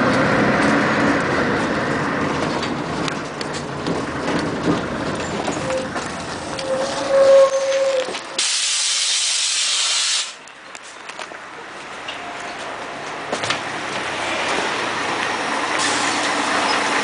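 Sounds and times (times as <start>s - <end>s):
bus brake squeal: 5.5s - 10.4s
compressed air hiss: 8.4s - 10.4s.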